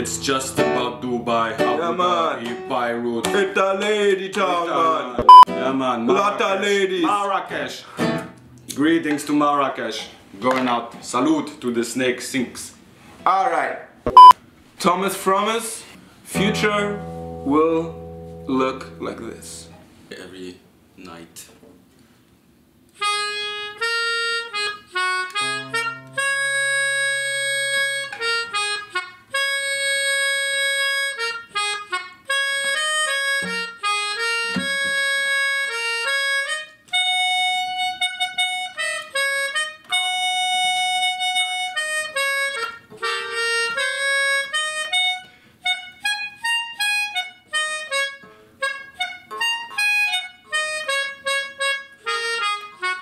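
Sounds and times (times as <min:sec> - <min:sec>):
melodica melody: 0:05.2 - 0:05.4, 0:23.0 - 0:53.0.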